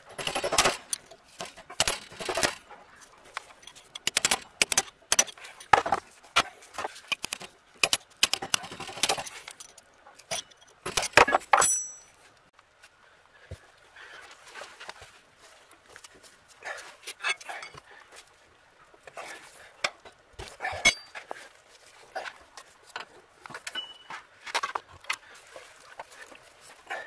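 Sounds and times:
screwdriver clinking on metal: 0:00.0 - 0:02.6, 0:07.1 - 0:12.1, 0:23.7 - 0:24.1.

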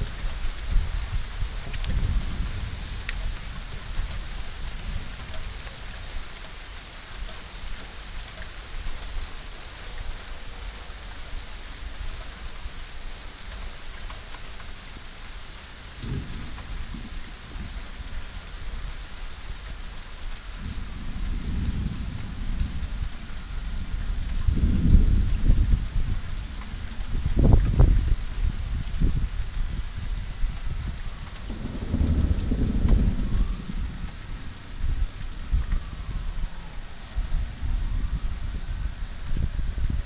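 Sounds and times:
thunder rumbling: 0:00.0 - 0:06.8, 0:15.8 - 0:40.0
steady hiss: 0:00.0 - 0:40.0.

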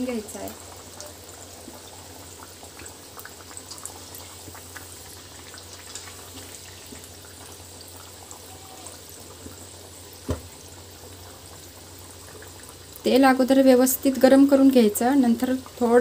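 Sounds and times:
food deep-frying in oil: 0:00.0 - 0:16.0
knock: 0:10.3 - 0:10.5.

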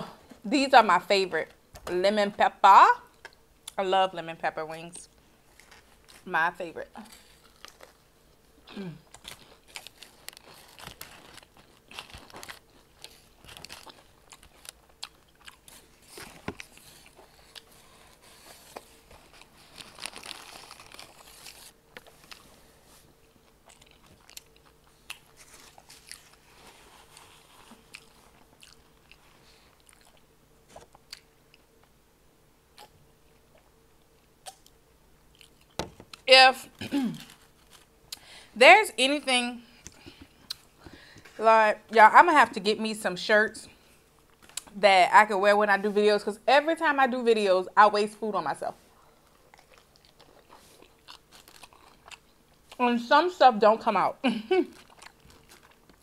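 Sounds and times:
crunchy chewing: 0:07.0 - 0:31.8, 0:32.7 - 0:36.3, 0:49.0 - 0:52.8, 0:54.6 - 0:56.0.

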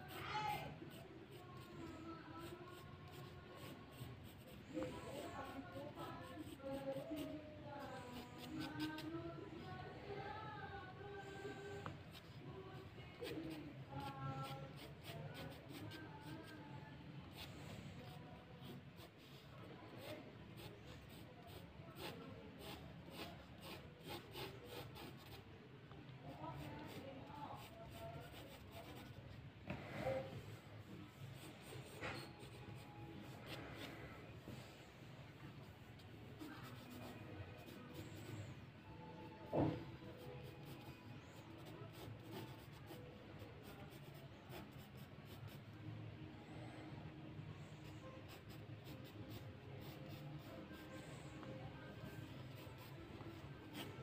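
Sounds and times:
pencil scratching on paper: 0:00.0 - 0:09.7, 0:13.1 - 0:25.5, 0:26.4 - 0:29.4, 0:31.3 - 0:34.1, 0:36.2 - 0:38.6, 0:39.6 - 0:45.6, 0:47.9 - 0:54.0.

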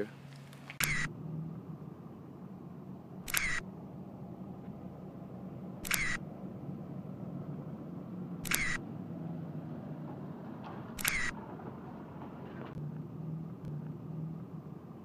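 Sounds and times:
camera shutter click: 0:00.8 - 0:01.1, 0:03.3 - 0:03.6, 0:05.8 - 0:06.2, 0:08.4 - 0:08.8, 0:11.0 - 0:11.4.

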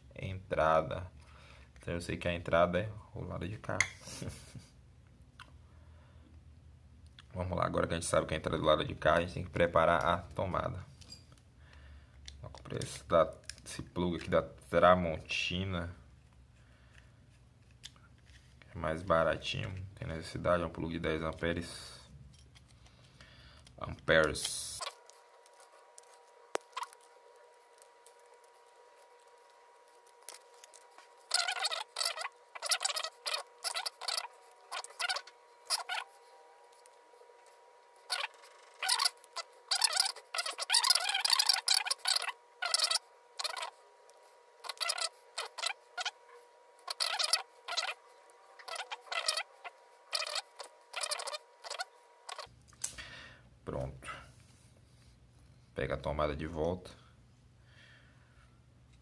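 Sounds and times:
scratchy rattles of plug parts: 0:22.3 - 0:36.0.

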